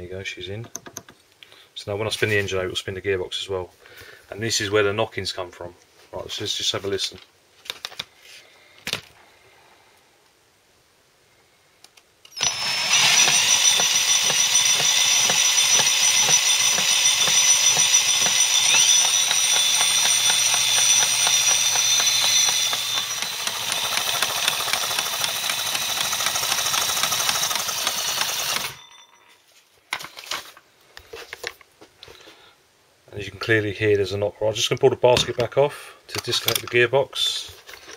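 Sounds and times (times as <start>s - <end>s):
electric drill motor whine: 12.3s - 29.2s.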